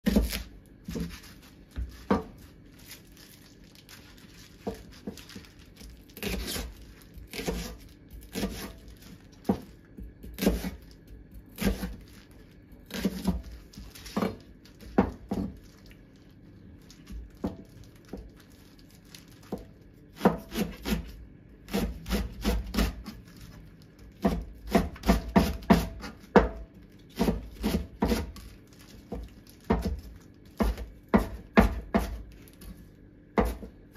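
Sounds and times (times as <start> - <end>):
knife chopping on cutting board: 0.0 - 2.5, 6.2 - 12.0, 12.8 - 15.6, 19.4 - 23.2, 24.1 - 28.5, 29.1 - 32.7, 33.3 - 33.9.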